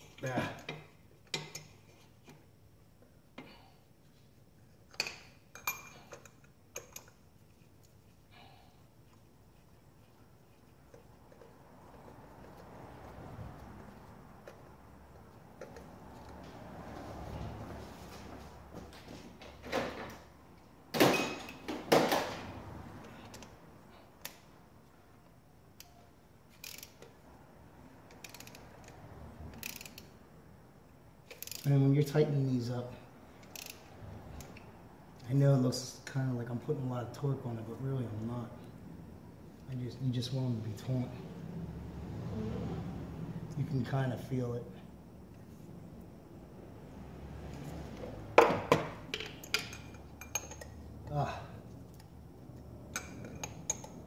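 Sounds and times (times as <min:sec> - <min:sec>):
metal tools clinking: 0:04.9 - 0:07.2
hand ratchet clicking: 0:26.5 - 0:27.1, 0:28.1 - 0:30.2, 0:31.3 - 0:31.7, 0:33.4 - 0:34.6.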